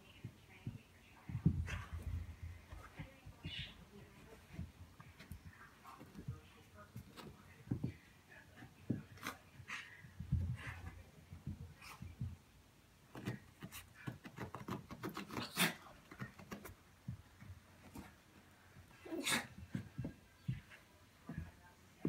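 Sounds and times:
dog flopping soft thumps: 0:00.1 - 0:08.1.

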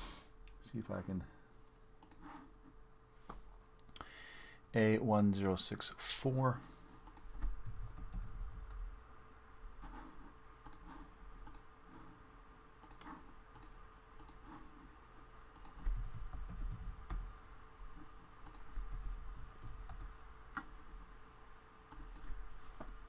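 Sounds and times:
faint steady hum: 0:00.0 - 0:23.0
computer keyboard typing: 0:07.0 - 0:08.8, 0:12.8 - 0:14.6, 0:15.5 - 0:17.2, 0:18.4 - 0:20.7.

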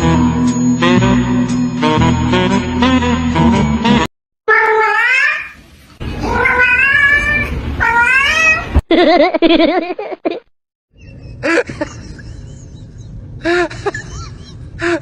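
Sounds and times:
cat meowing: 0:04.5 - 0:05.6, 0:06.2 - 0:08.8.

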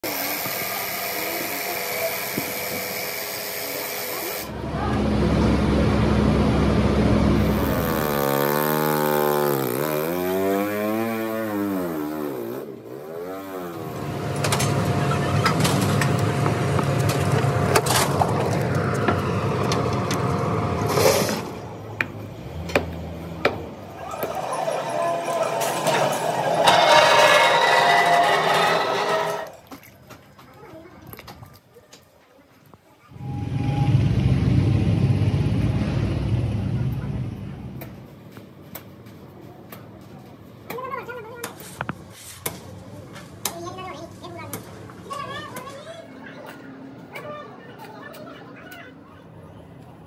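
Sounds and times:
machinery hum: 0:00.7 - 0:08.8, 0:13.8 - 0:29.5, 0:33.1 - 0:38.1.

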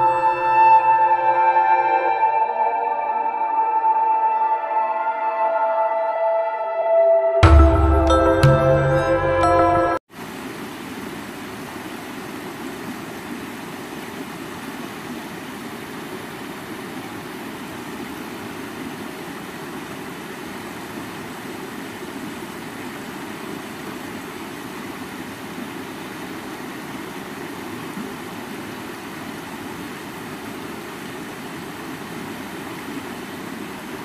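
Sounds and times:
stream rushing over stones: 0:10.1 - 0:34.0.

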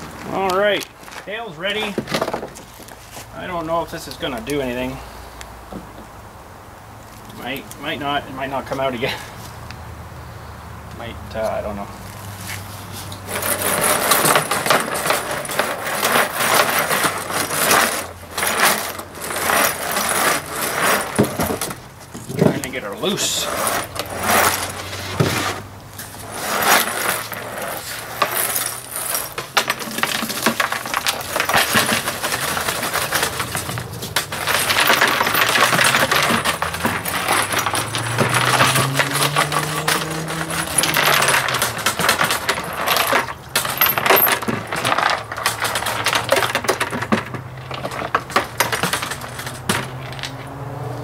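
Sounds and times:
metal washers rattling in a tank: 0:13.2 - 0:50.3.

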